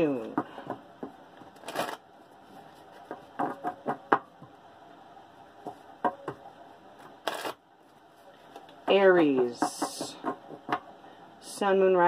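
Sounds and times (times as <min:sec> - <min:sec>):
cards being shuffled: 0:01.5 - 0:03.1, 0:07.2 - 0:07.6.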